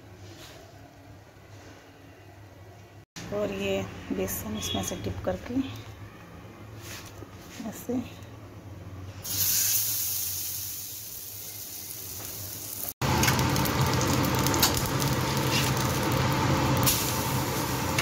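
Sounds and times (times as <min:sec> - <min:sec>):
bread sizzling on hot pan: 0:09.2 - 0:18.0.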